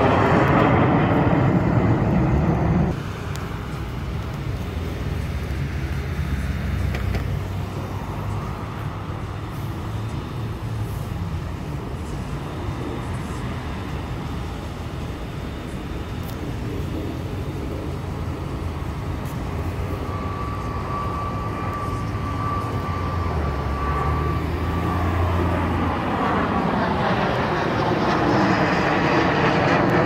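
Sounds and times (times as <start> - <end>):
jet engine whine: 0.0 - 30.0
jet flying low overhead: 0.0 - 30.0.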